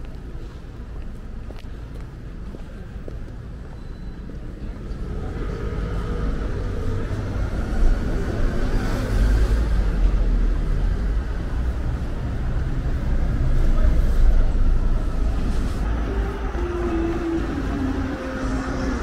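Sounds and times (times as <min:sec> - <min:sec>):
vehicle engine rumble passing: 0:04.4 - 0:19.0.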